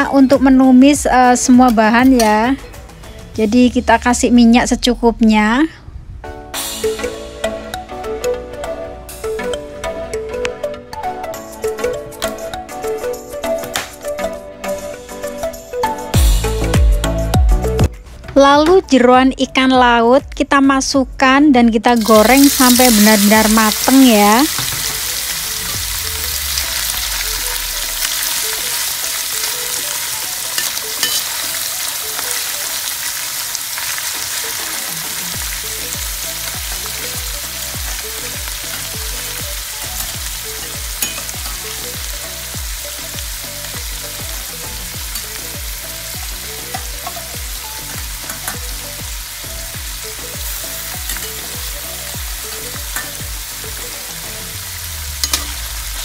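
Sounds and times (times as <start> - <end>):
food sizzling in hot oil: 22.0 - 56.0.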